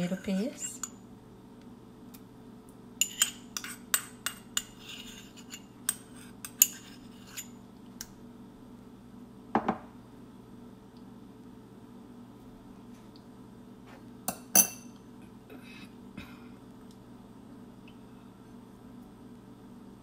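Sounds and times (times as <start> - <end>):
metal spoon clinking on ceramic bowl: 3.0 - 7.6, 14.3 - 14.9
dull knock: 9.6 - 9.9.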